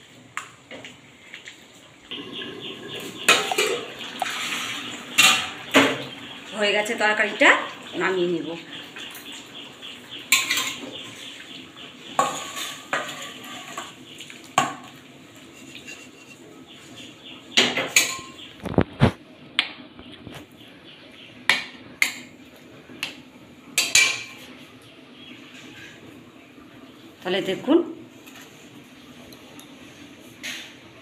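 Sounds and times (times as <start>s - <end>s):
metal pan and spatula clanking: 3.2s - 6.1s, 10.3s - 11.0s, 12.2s - 14.0s, 17.6s - 18.4s, 23.8s - 24.4s.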